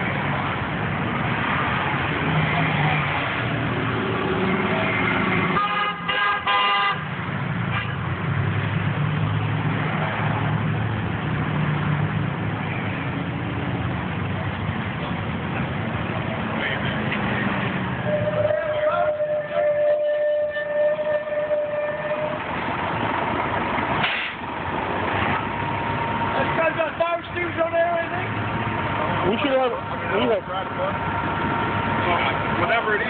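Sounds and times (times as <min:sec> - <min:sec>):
street traffic rumble: 0:00.0 - 0:33.0
vehicle horn honking: 0:05.5 - 0:08.0, 0:18.0 - 0:22.4.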